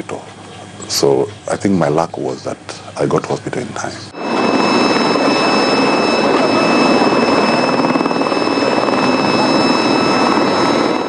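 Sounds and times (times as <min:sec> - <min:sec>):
helicopter flying overhead: 0:04.1 - 0:11.0.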